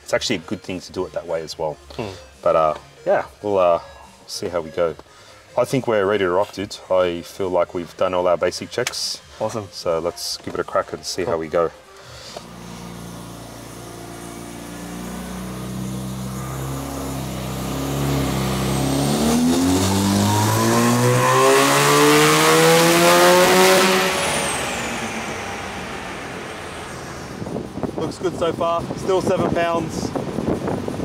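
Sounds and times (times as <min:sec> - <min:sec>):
rotary engine revving: 0:12.4 - 0:29.0.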